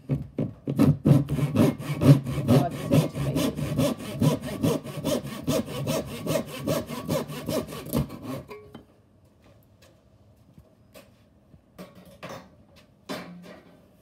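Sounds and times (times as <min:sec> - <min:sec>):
saw cutting wood: 0:00.7 - 0:08.5.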